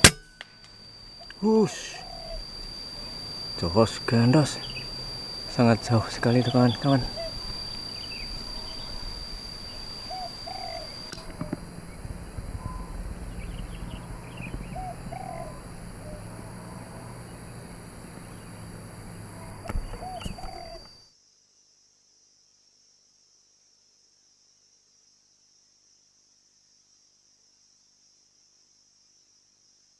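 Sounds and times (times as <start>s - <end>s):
faint bird chirps: 0.0s - 21.0s
high-pitched insect drone: 0.0s - 21.2s
dove cooing: 1.2s - 21.0s.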